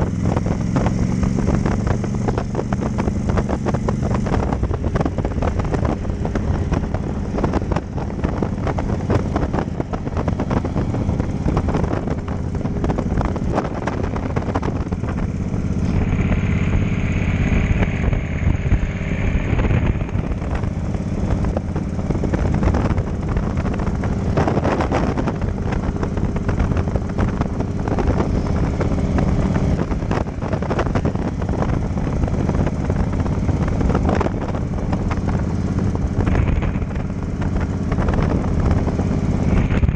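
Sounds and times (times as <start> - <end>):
motorcycle running: 0.0 - 39.9
wind noise: 0.0 - 39.9
high-pitched whine: 15.7 - 20.2.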